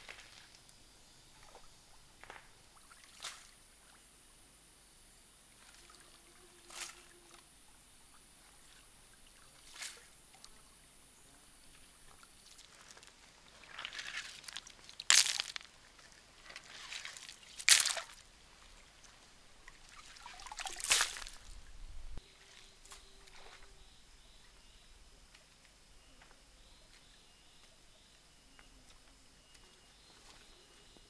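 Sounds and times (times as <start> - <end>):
hands splashing water: 12.5 - 15.8, 16.4 - 18.2, 19.6 - 21.6.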